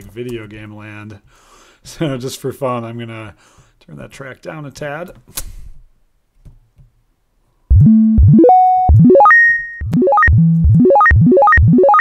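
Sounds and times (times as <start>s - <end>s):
fast synth arpeggios: 7.7s - 12.0s
synth held notes: 7.7s - 12.0s.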